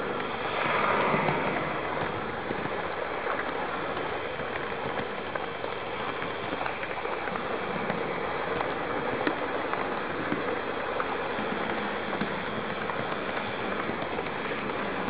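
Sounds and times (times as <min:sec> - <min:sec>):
train passing alongside: 0:00.0 - 0:08.5.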